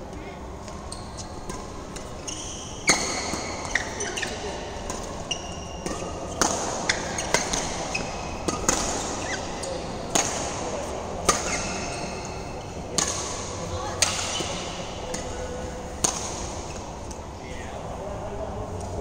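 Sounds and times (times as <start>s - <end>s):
shoes squeaking on court floor: 0.6s - 10.2s, 11.3s - 12.7s
rackets striking shuttlecock: 1.4s - 12.0s, 12.8s - 15.4s, 16.0s - 17.2s.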